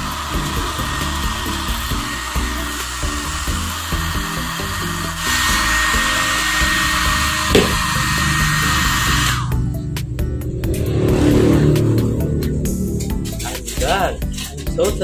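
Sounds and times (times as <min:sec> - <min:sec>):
hair dryer blowing: 0:00.0 - 0:09.6
high whine: 0:06.0 - 0:15.0
short knock: 0:07.5 - 0:07.9.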